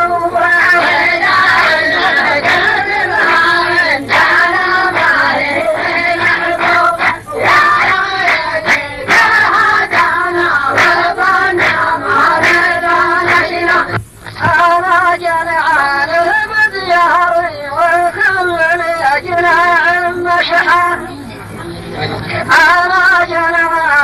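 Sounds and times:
chorus chanting in unison: 0.0 - 14.0.

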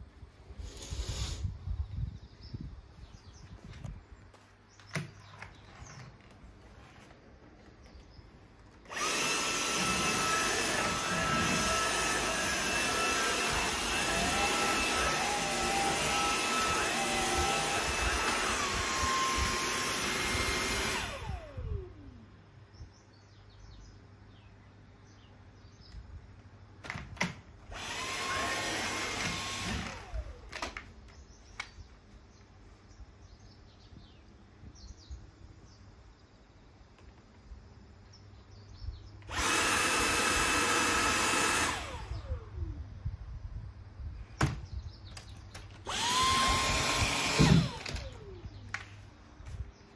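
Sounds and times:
stick vacuum cleaner whine: 8.6 - 22.0, 26.9 - 30.8, 39.3 - 42.8, 45.5 - 48.9.

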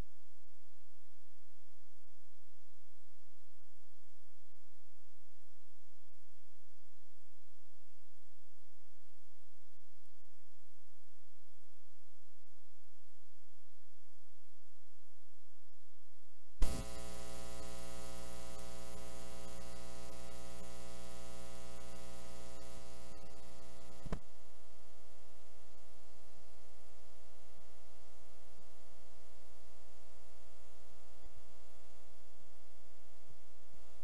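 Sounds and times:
electrical mains hum: 0.0 - 34.0
sharp click: 24.0 - 24.3.

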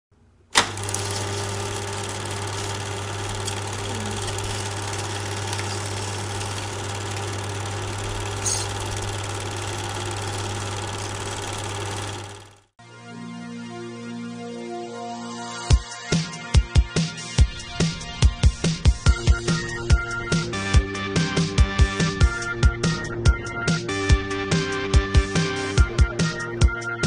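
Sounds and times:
projector click: 0.6 - 1.6
film projector whirring: 0.6 - 12.7.

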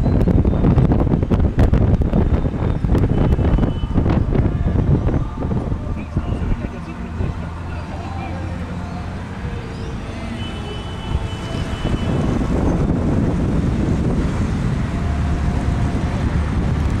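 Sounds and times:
street traffic: 0.0 - 17.0
wind on microphone: 0.0 - 17.0
vehicle passing close: 4.1 - 17.0.

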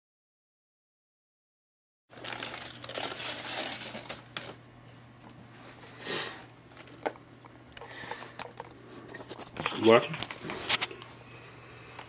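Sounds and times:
handling and rustling noise: 2.1 - 4.6
low steady hum: 2.1 - 12.0.

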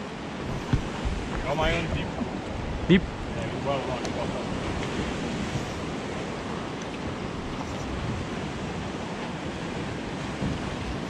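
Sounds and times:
waves washing: 0.0 - 11.0
wind rush on microphone: 0.0 - 11.0.

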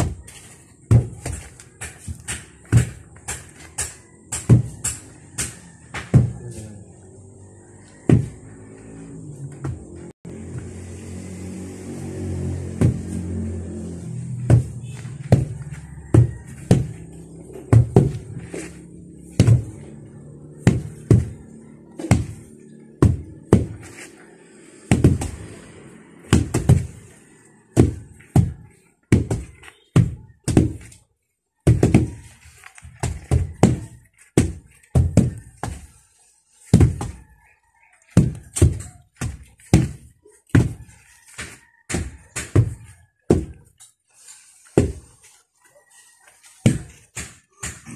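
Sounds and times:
wooden tampers thudding on soil: 12.7 - 24.2, 27.8 - 37.3, 38.1 - 45.3.

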